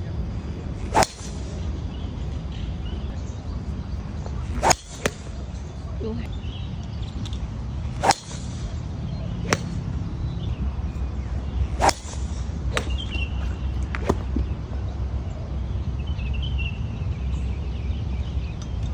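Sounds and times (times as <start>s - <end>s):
low wind rumble on microphone: 0.0s - 18.9s
bird chirping: 0.9s - 18.9s
sharp cracks: 8.0s - 8.7s, 11.8s - 12.9s.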